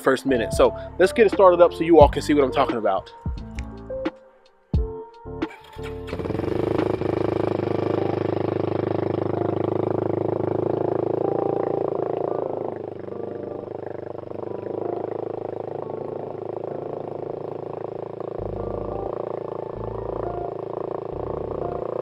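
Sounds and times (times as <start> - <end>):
quad bike engine idling: 5.4 - 22.0.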